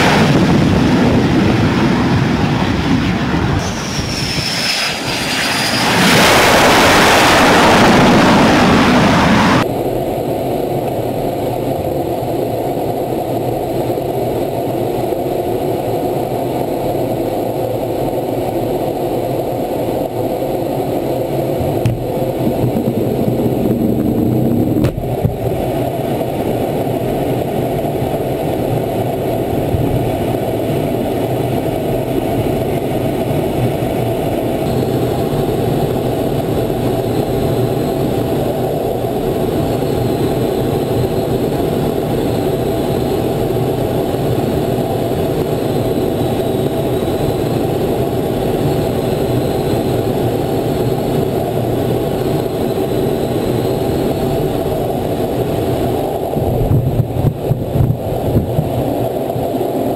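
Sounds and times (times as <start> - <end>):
rushing air: 0.0 - 9.7
jet engines roaring: 0.0 - 59.9.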